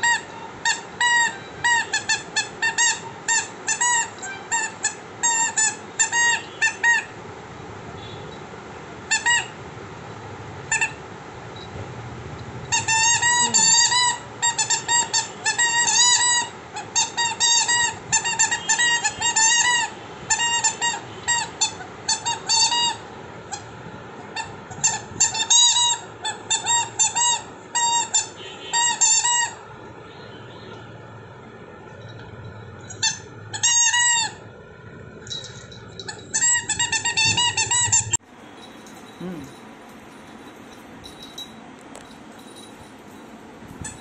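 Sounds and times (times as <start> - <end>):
squeaky dog toy squeaking: 0.0 - 7.2, 9.1 - 9.6, 10.7 - 11.0, 12.7 - 29.7, 32.1 - 34.6, 35.2 - 38.2, 43.8 - 44.0.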